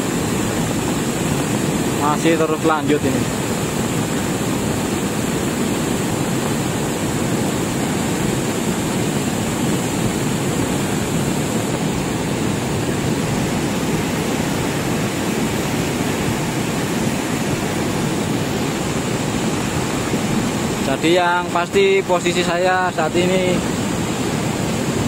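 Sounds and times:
volcanic mud flood rushing: 0.0 - 25.0.

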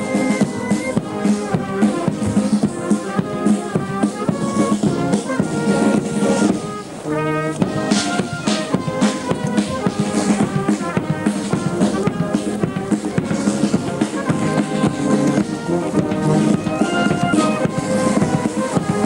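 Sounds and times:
brass band playing a march: 0.0 - 19.0.

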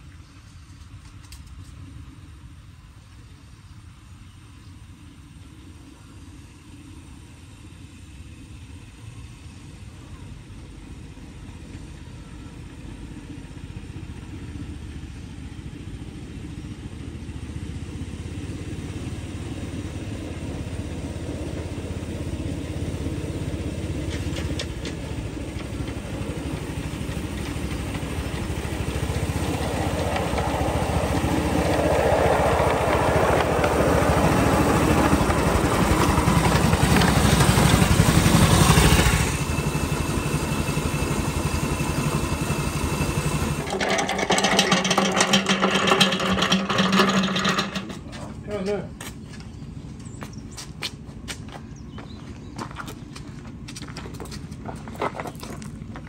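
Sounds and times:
miniature locomotive engine running: 21.6 - 48.6.

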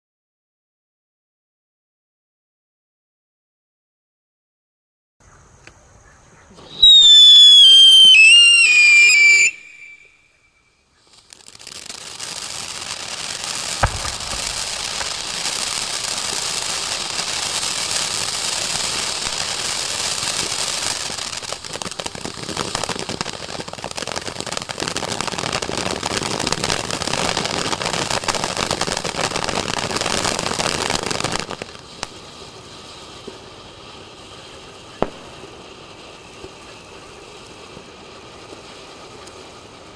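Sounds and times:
firework fountain hissing and crackling: 6.4 - 39.9
high whistle falling in pitch: 6.7 - 10.6.

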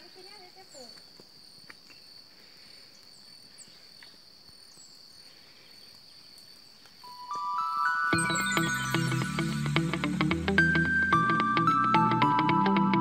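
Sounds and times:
high-pitched insect trill: 0.0 - 10.0.

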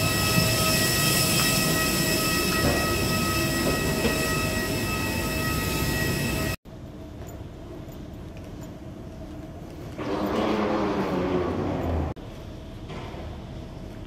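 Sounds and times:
high steady whining tones: 0.0 - 6.6.

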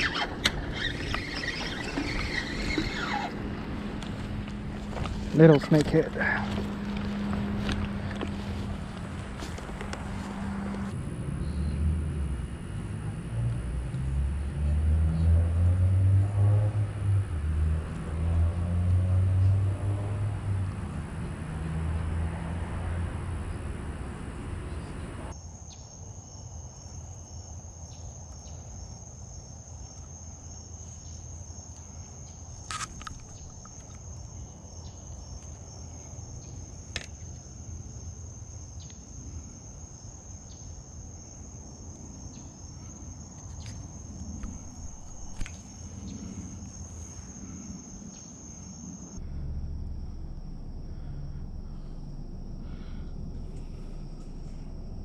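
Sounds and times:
insects trilling: 0.0 - 16.6, 17.4 - 55.0
low rumble: 49.2 - 55.0.

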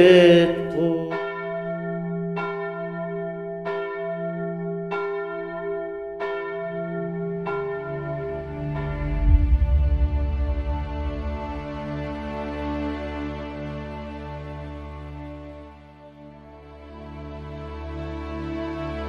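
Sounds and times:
low music: 0.0 - 1.2, 8.4 - 13.9
church bell tolling: 0.0 - 12.7.

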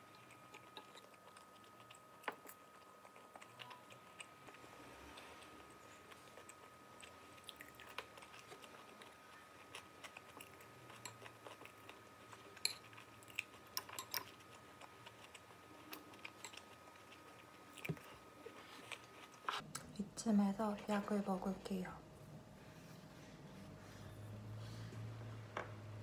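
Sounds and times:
chewing and crunching food: 0.0 - 20.0.

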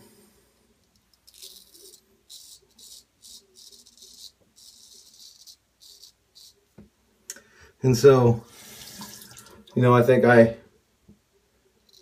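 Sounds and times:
razor scraping stubble: 1.3 - 6.6.

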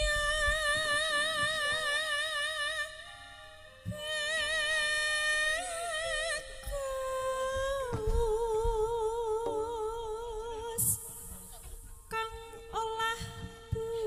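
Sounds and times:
low thumps: 0.0 - 2.0, 6.7 - 14.0
woman singing long notes: 3.8 - 11.3.

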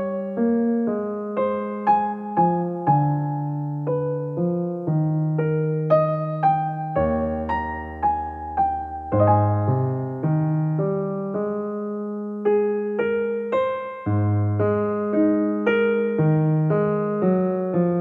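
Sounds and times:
gentle piano melody: 0.0 - 18.0.

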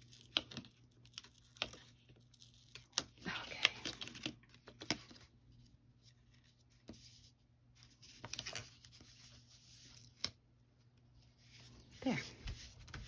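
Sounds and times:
paper rustle: 6.0 - 10.4.

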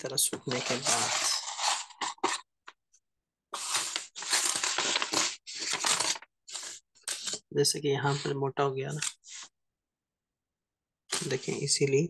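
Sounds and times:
craft knife scraping paper: 0.5 - 2.5, 3.5 - 9.5.

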